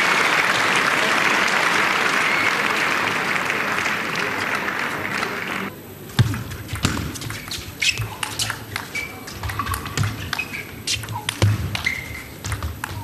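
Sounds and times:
shoes squeaking on floor: 7.2s - 13.0s.

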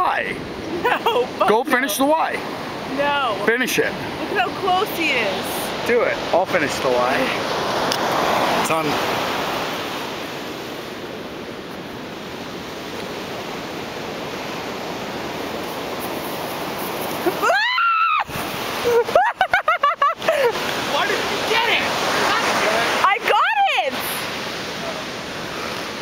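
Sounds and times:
surf on a beach: 0.0s - 26.0s
high voice crying out: 17.3s - 18.3s.

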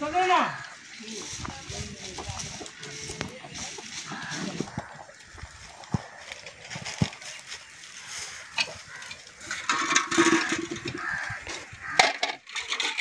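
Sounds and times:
farm animal calling: 0.0s - 12.3s
stick knocking against metal pot: 8.5s - 13.0s.

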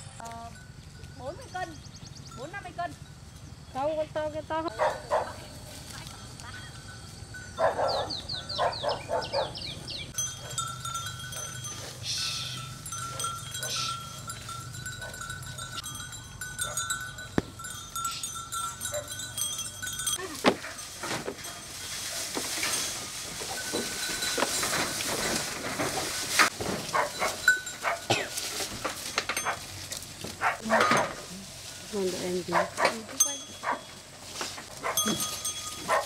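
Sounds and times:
high chirping: 6.5s - 20.2s
knocks and rustling: 16.8s - 18.1s, 19.0s - 36.0s.

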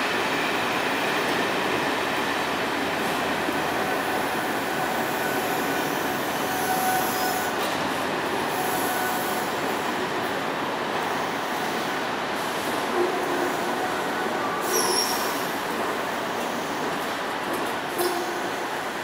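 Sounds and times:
train wheels rolling on rail: 0.0s - 19.0s
faint wheel squeal: 14.5s - 15.4s.

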